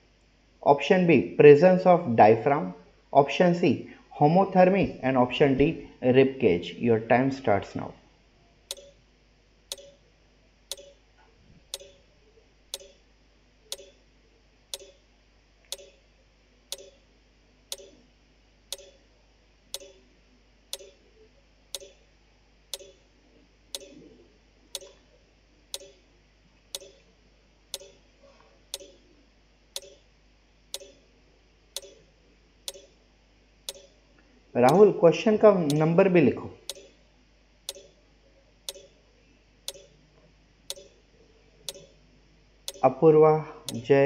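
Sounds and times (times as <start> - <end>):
clock-like ticking: 8.7 - 9.0, 9.7 - 10.0, 10.7 - 11.0, 11.7 - 12.0, 12.7 - 13.0, 13.7 - 14.0, 14.8 - 15.0, 15.7 - 16.0, 16.7 - 17.0, 17.7 - 18.0, 18.7 - 19.0, 19.8 - 20.0, 20.7 - 21.0, 21.7 - 22.0, 22.7 - 23.0, 23.8 - 24.0, 24.8 - 25.0, 25.8 - 26.0, 26.8 - 27.0, 27.7 - 28.0, 28.8 - 29.0, 29.8 - 30.0, 30.8 - 31.0, 31.8 - 32.0, 32.7 - 32.9, 33.7 - 33.9, 34.7 - 34.9, 36.7 - 36.9, 37.7 - 37.9, 38.7 - 38.9, 39.7 - 39.9, 40.7 - 40.9, 41.7 - 41.9, 42.7 - 42.9.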